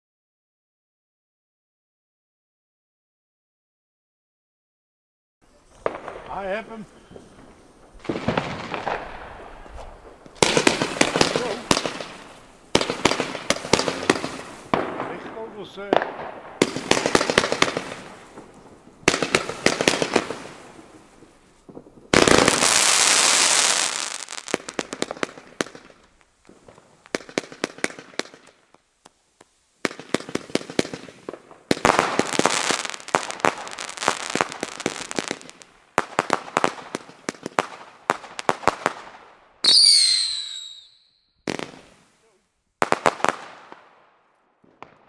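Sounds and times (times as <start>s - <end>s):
firework pops and crackling: 5.6s - 45.0s
firework hissing burst: 5.7s - 15.1s, 16.2s - 28.6s
falling firework whistle: 6.8s - 9.0s, 39.6s - 41.6s.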